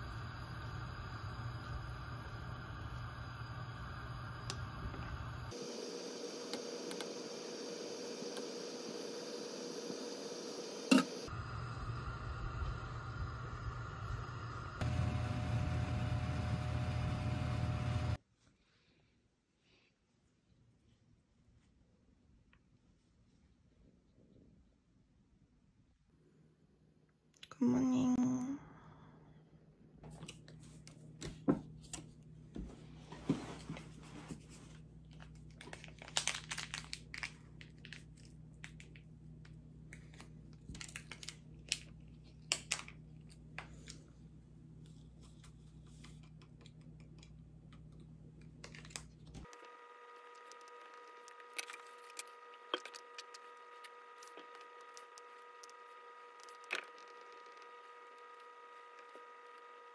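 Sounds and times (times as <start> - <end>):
high steady whine: 0.0 - 18.2, 49.5 - 59.9
low steady hum: 11.2 - 18.2.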